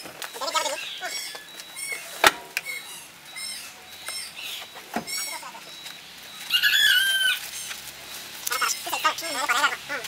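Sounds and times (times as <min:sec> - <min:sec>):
bird chirping: 0:00.4 - 0:10.0.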